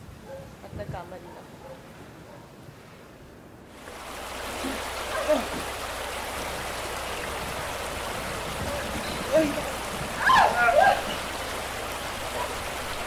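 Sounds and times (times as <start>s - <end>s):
heavy rain and rushing water: 3.6s - 13.0s.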